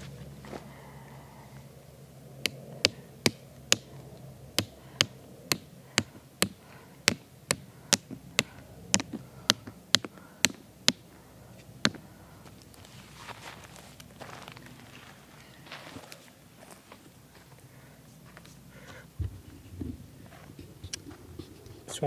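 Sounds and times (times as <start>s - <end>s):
rock hammering tent peg: 2.4s - 3.9s, 4.6s - 11.0s.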